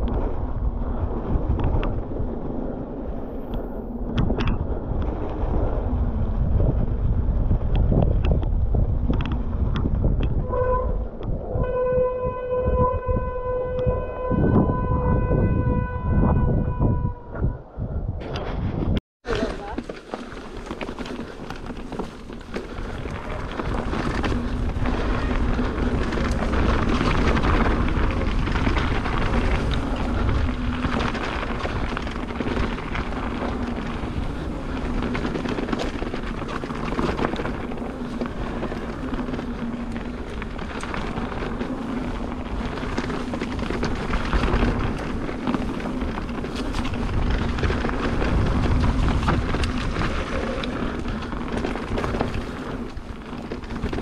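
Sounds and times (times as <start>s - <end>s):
bike tyre noise: 0.0s - 54.0s
wind buffeting microphone: 0.0s - 54.0s
bike rattling clicks: 19.4s - 54.0s.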